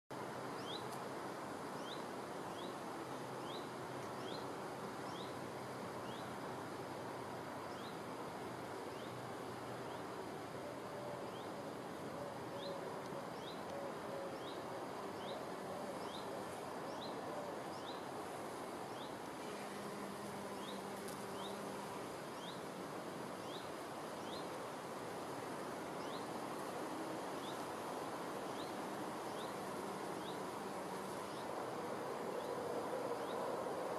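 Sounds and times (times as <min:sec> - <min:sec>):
steady outdoor hiss: 0:00.1 - 0:33.9
honeybee buzzing: 0:19.4 - 0:22.1.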